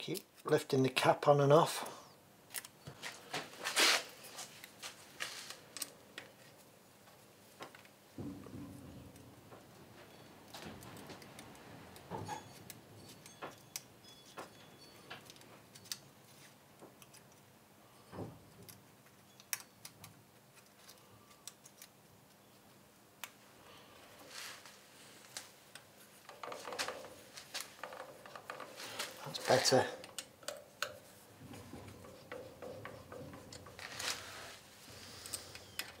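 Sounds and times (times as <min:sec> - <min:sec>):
metallic clicks and taps: 0:30.0 - 0:33.8
handling rustle: 0:31.0 - 0:36.0.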